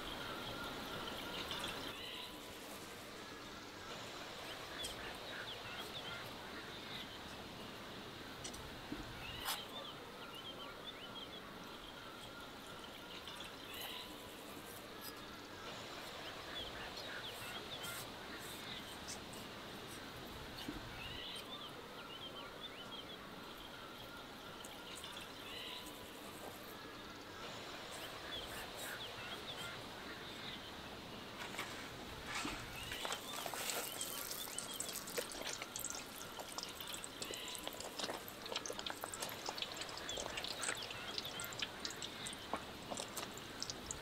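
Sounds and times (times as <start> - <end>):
steady outdoor hiss: 0.0 - 44.0
small birds chirping: 16.0 - 44.0.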